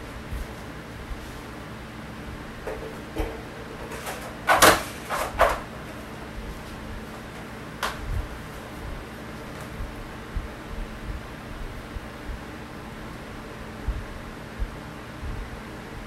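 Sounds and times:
plastic stool clattering: 2.6 - 6.1.

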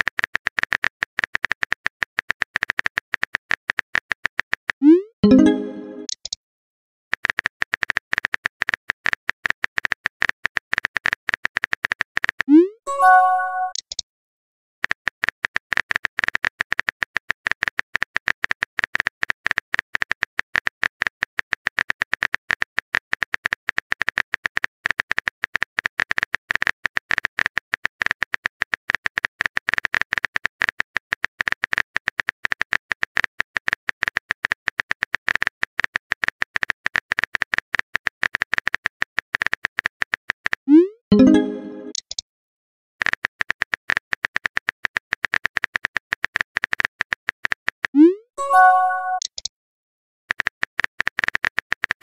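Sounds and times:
keyboard typing clicks: 4.8 - 6.4, 12.9 - 14.0, 41.1 - 42.2, 48.4 - 49.5.

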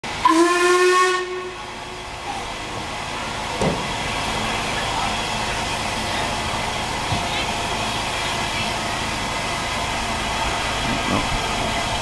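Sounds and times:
steam hissing: 0.1 - 12.0
steam locomotive whistle: 0.2 - 1.7.

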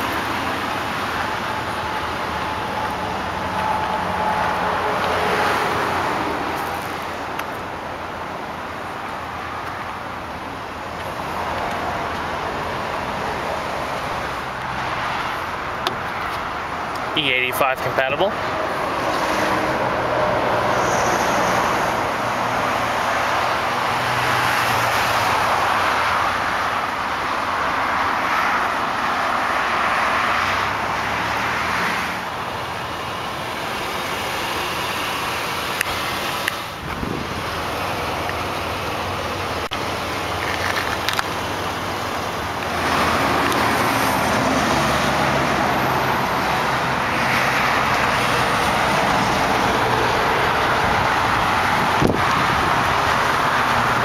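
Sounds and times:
car engine idling: 0.0 - 19.0, 32.2 - 43.8
road traffic rushing: 0.0 - 54.0.

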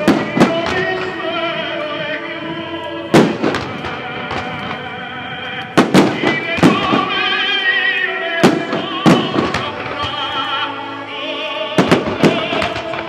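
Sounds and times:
fireworks bursting: 0.0 - 13.0.

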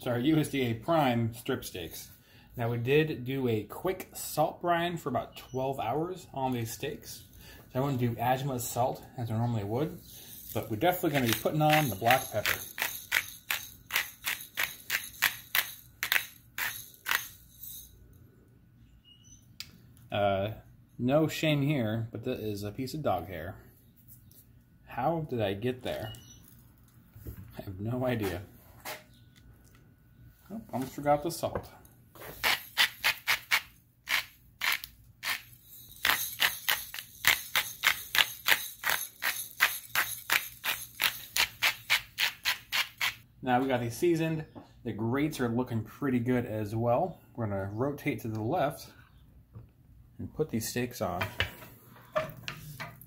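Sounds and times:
pepper mill grinding: 10.0 - 18.0, 32.2 - 43.2.

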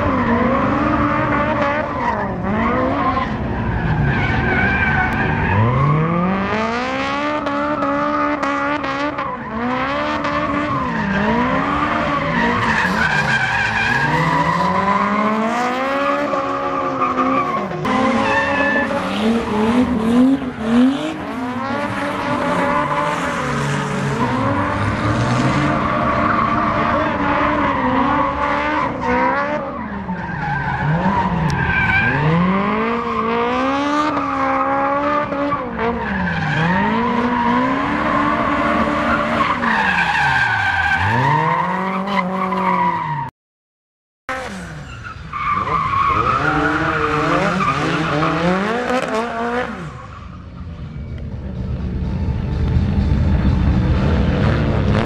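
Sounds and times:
car engine revving hard: 17.8 - 29.7, 46.1 - 49.9.

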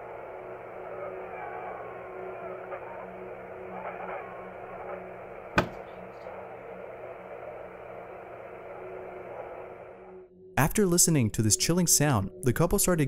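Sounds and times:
baby monitor static hiss: 0.0 - 10.1
low hum: 0.0 - 10.4.

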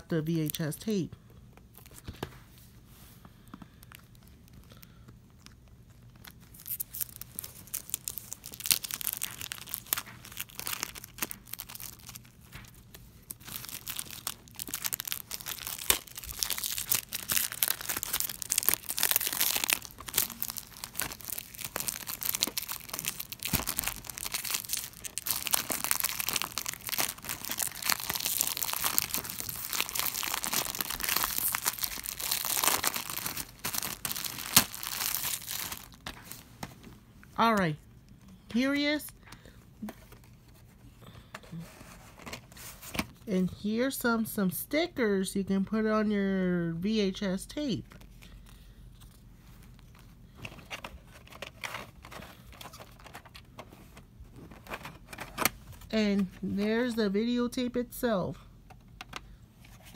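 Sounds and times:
plastic shrink-wrap tearing and crinkling: 5.4 - 36.6.

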